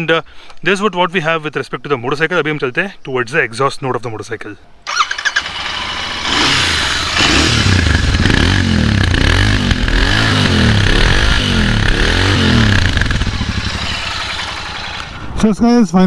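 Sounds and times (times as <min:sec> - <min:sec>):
motorcycle engine idling: 0:04.9 - 0:15.4
motorcycle throttle blips: 0:04.9 - 0:15.4.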